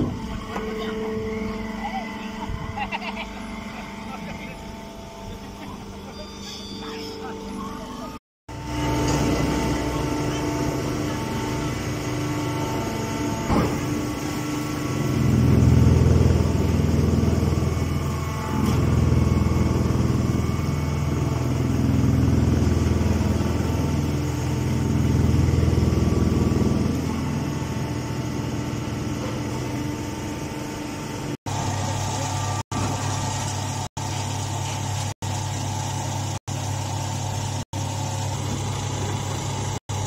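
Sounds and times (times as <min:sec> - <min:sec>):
hay baler humming: 0:00.0 - 0:40.0.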